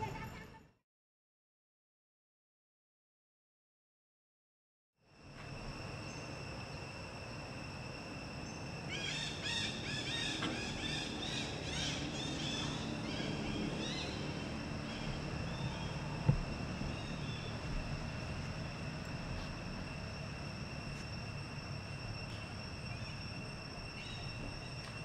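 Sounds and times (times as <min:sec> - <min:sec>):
insects droning: 0:05.0 - 0:25.0.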